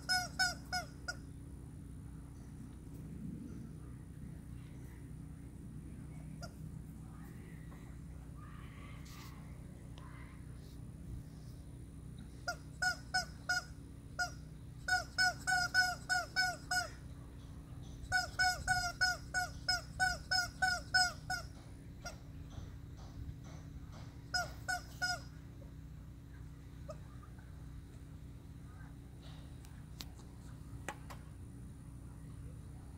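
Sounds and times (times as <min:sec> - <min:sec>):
rubber chicken toy squawking: 0:00.0 - 0:01.3, 0:12.4 - 0:17.0, 0:18.0 - 0:22.2, 0:24.3 - 0:25.4.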